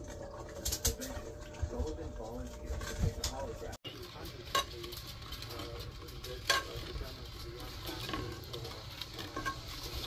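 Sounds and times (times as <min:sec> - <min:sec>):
spoon stirring syrup in saucepan: 0:04.4 - 0:10.0.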